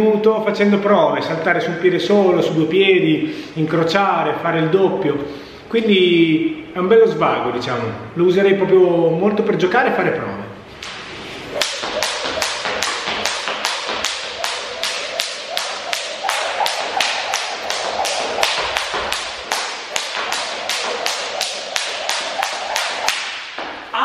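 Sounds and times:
skipping rope slapping wooden floor: 0:10.8 - 0:24.0.

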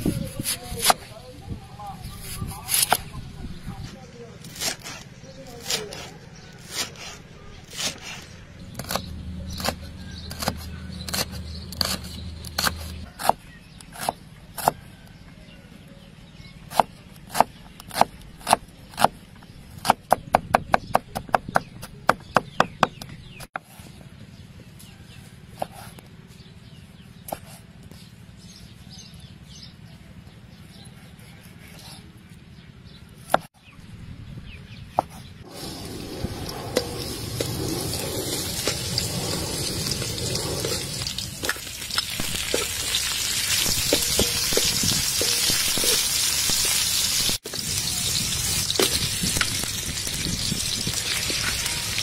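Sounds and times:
knife chopping vegetables: 0:04.5 - 0:14.8, 0:16.7 - 0:19.2, 0:25.6 - 0:26.0.

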